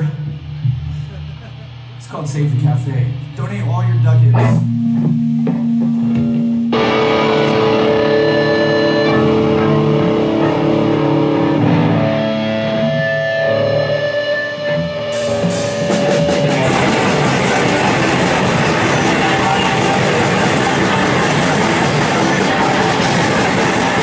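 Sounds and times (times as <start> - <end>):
live rock band playing: 2.6 - 24.0
cymbals: 14.9 - 24.0.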